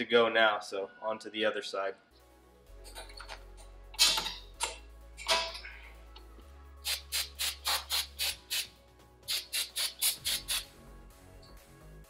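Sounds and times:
background music: 0:00.0 - 0:12.0
aerosol spray can hissing: 0:06.8 - 0:10.7.

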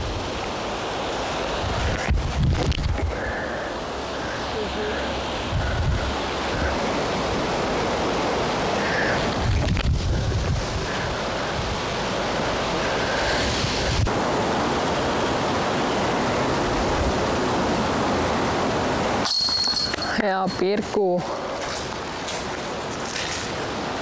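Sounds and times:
wind through trees: 0:00.0 - 0:24.0
wind buffeting microphone: 0:01.5 - 0:03.4, 0:05.1 - 0:14.2.

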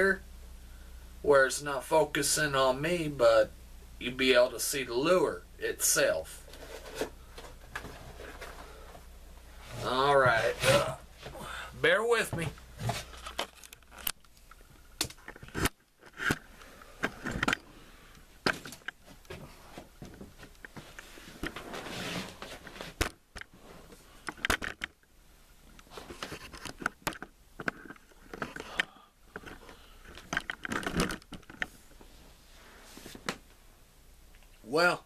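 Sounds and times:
scraping and rustling: 0:06.4 - 0:11.4, 0:18.5 - 0:24.2.

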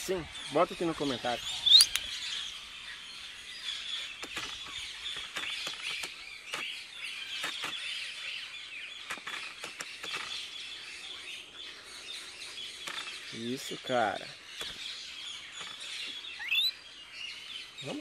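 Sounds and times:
birds chirping and twittering: 0:00.0 - 0:18.0
sharp clicks: 0:01.7 - 0:02.1, 0:04.2 - 0:06.7, 0:07.4 - 0:07.8, 0:12.8 - 0:13.2.

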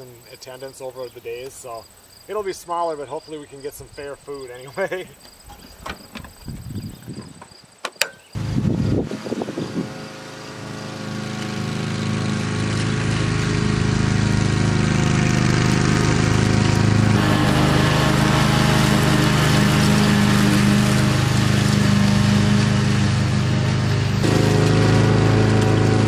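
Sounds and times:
riding lawn mower engine running: 0:08.4 - 0:26.0.

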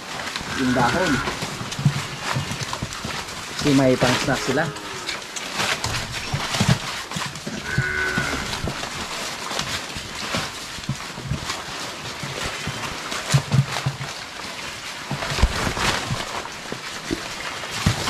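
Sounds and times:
piglets chewing leaves: 0:00.0 - 0:18.0
piglets grunting: 0:00.5 - 0:01.4, 0:07.5 - 0:08.8.

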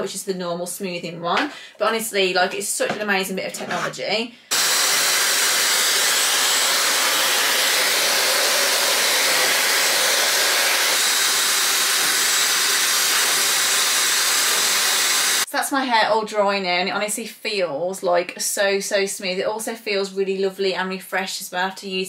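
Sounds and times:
hair dryer blowing: 0:04.5 - 0:15.5.

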